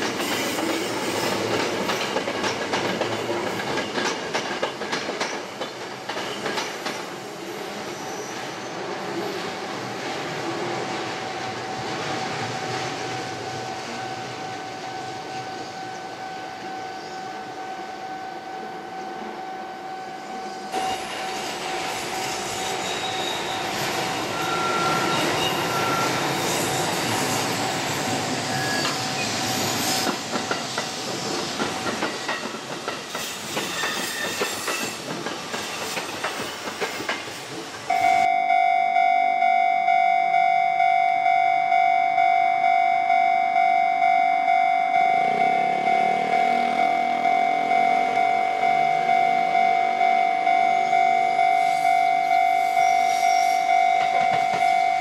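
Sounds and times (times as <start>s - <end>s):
wheels clacking over rail joints: 0.0s - 7.2s, 29.6s - 37.9s
electric train whine: 5.4s - 55.0s
repeating electronic ringing: 37.9s - 52.6s.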